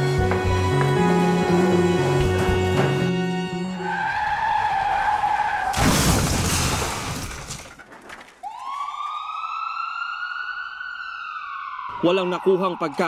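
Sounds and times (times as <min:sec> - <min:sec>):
car tyres screeching: 0:00.9 - 0:05.8
siren wailing: 0:03.3 - 0:05.8, 0:08.4 - 0:13.0
crash with breaking glass: 0:05.7 - 0:08.3.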